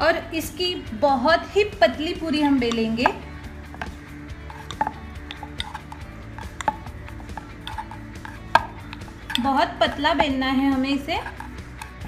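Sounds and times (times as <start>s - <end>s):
upbeat background music: 0.0s - 12.0s
rolling pin knocking on board: 2.6s - 10.4s.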